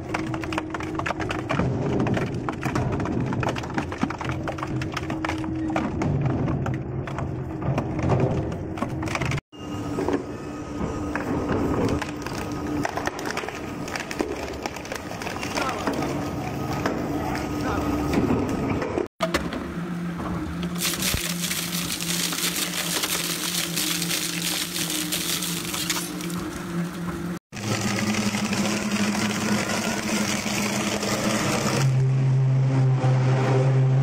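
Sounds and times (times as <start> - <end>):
shredder motor hum: 19.3 - 34.0
rattling grinding noise: 20.7 - 31.9.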